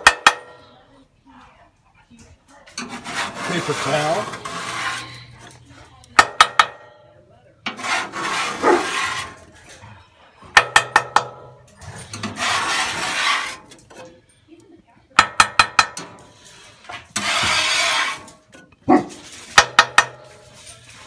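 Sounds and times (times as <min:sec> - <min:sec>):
scraper scraping steel griddle: 0:02.7 - 0:06.9, 0:07.6 - 0:10.0, 0:10.6 - 0:14.2, 0:15.8 - 0:21.0
scraper tapping on iron pan: 0:15.2 - 0:16.1, 0:19.5 - 0:20.6.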